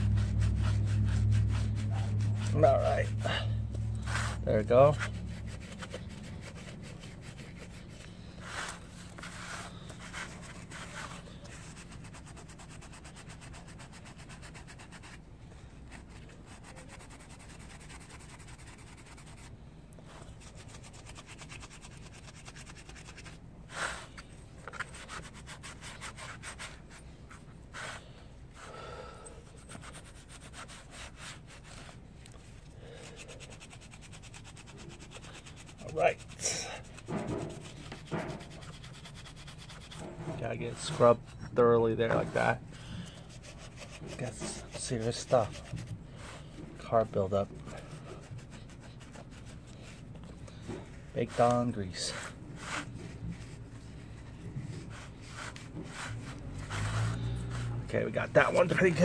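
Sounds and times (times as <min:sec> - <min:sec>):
scouring pad scrubbing metal: 0:00.0 - 0:15.0, 0:33.2 - 0:42.6, 0:43.2 - 0:50.1, 0:54.8 - 0:59.0.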